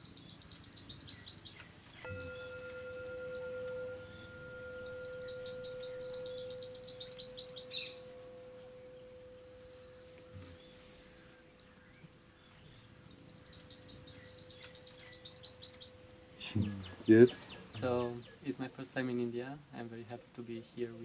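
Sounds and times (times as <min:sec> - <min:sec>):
small birds chirping: 0:00.0 - 0:21.0
struck chime ringing: 0:02.0 - 0:12.0.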